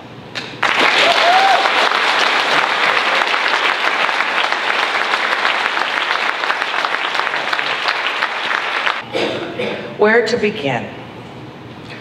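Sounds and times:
audience applauding: 0:00.4 - 0:09.0.

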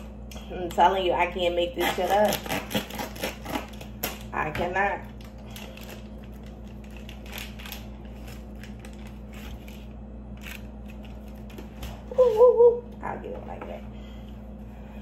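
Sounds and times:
low steady hum: 0:00.0 - 0:15.0
plastic packaging crinkling: 0:05.0 - 0:12.1.

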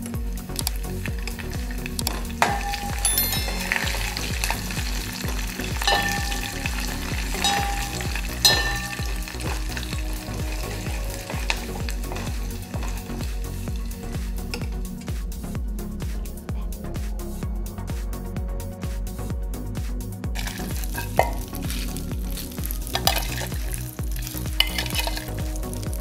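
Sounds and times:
spices sizzling in hot oil: 0:00.1 - 0:14.8, 0:20.4 - 0:26.0
metal spoon stirring: 0:01.1 - 0:13.2, 0:20.4 - 0:25.9
spoon clinking against pan: 0:02.4 - 0:04.6, 0:05.8 - 0:09.8.

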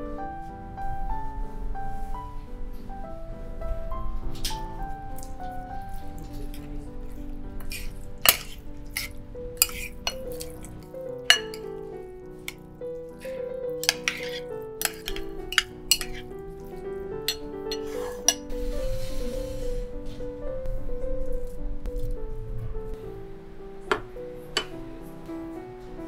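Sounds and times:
background music: 0:00.0 - 0:26.0
spoon clinking on ceramic dish: 0:07.6 - 0:10.7, 0:11.3 - 0:11.7, 0:13.8 - 0:16.2.

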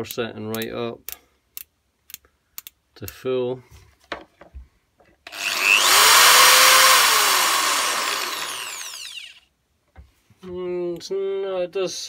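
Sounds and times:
hammer drill motor whirring: 0:05.3 - 0:09.5.

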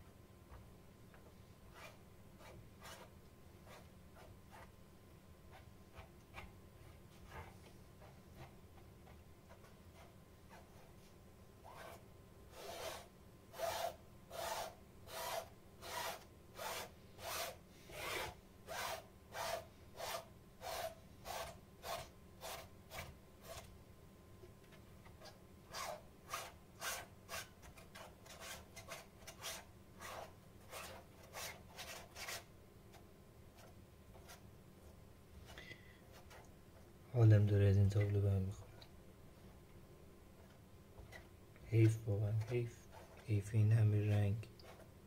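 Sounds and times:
paintbrush rubbing on canvas: 0:01.7 - 0:04.7.

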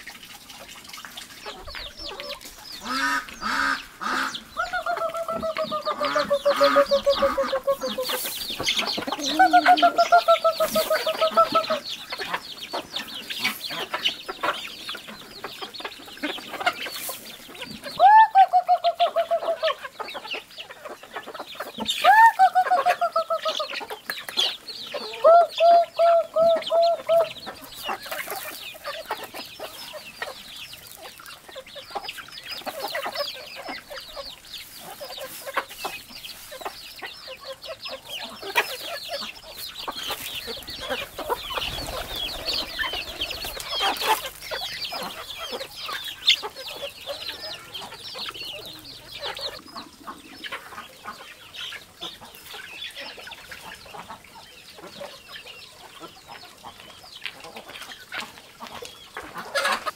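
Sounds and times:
chickens clucking: 0:00.0 - 0:59.9.

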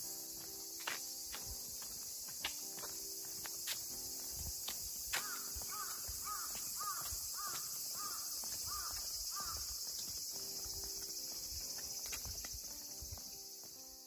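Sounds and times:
steady high hiss: 0:00.0 - 0:14.0
bird calling: 0:05.2 - 0:10.5.

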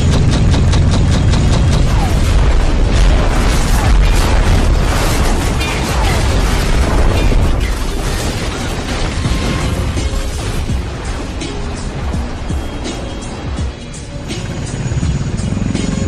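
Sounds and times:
deep rumble: 0:00.0 - 0:15.7
background music: 0:00.0 - 0:16.0
explosion booms: 0:01.0 - 0:12.8.

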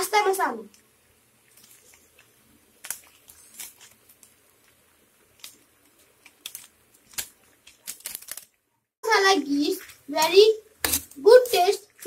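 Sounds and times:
faint room noise: 0:00.0 - 0:12.0
packaging rustling: 0:01.5 - 0:08.6.

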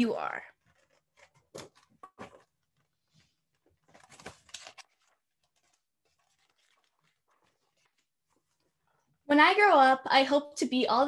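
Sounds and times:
book pages being turned: 0:00.5 - 0:08.9.

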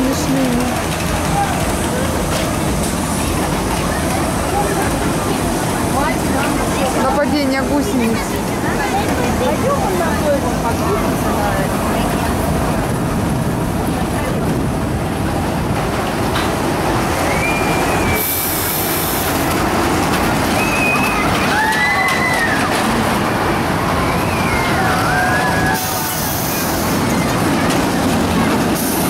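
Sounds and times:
roller coaster wheels rumbling on rail: 0:00.0 - 0:29.0
high squeal: 0:17.2 - 0:18.6.

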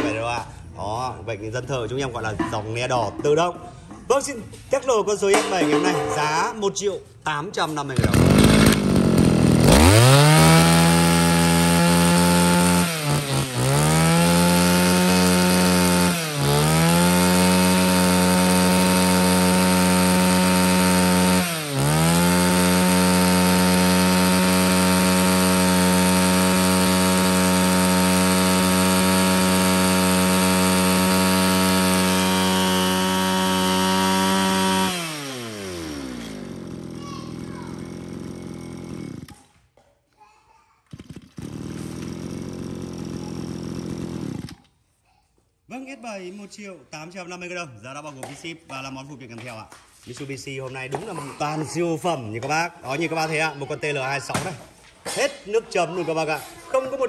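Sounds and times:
brush cutter engine revving: 0:07.6 - 0:39.6, 0:40.9 - 0:44.8.

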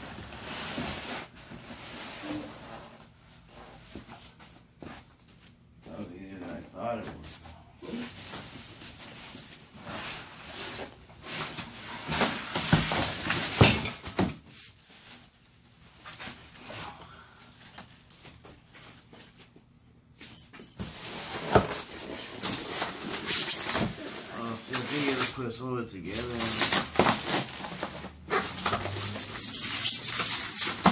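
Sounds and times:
foam packing scraping: 0:00.0 - 0:03.0, 0:26.1 - 0:30.9
plastic wrap rustling: 0:20.9 - 0:30.9.

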